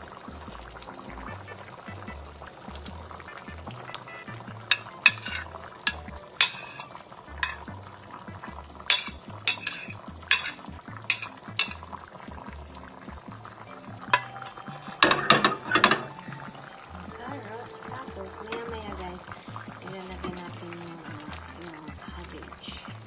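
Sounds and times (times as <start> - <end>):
spatula scraping a plate: 4.7 - 5.6, 8.9 - 11.8.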